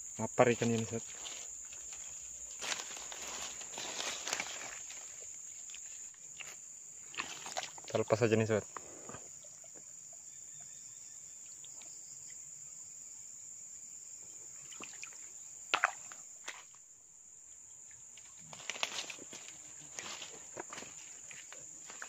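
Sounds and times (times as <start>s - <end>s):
insects droning: 0.0s - 22.0s
footsteps in leaf litter: 0.6s - 6.0s.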